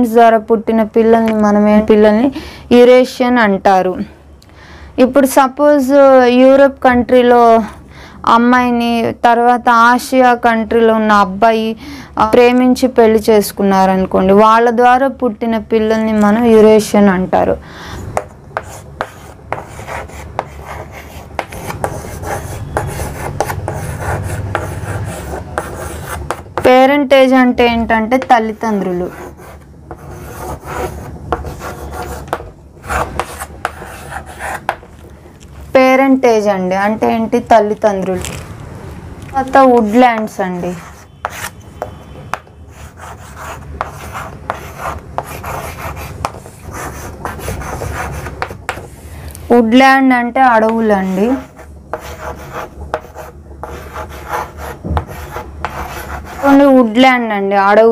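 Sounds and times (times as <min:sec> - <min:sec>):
chalk tapping on board: 0:18.1 - 0:24.8, 0:25.6 - 0:26.7, 0:29.1 - 0:34.8, 0:39.7 - 0:48.8, 0:51.4 - 0:56.6
chalk scratching on chalkboard: 0:18.2 - 0:26.8, 0:28.2 - 0:34.8, 0:39.6 - 0:48.9, 0:51.0 - 0:56.7.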